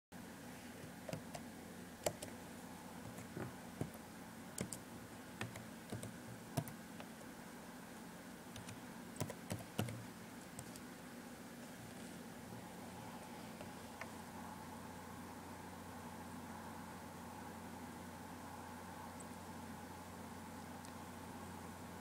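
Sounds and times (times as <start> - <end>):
low steady hum: 0.2 - 22.0
keyboard key clicks: 2.0 - 2.3, 4.6 - 4.8.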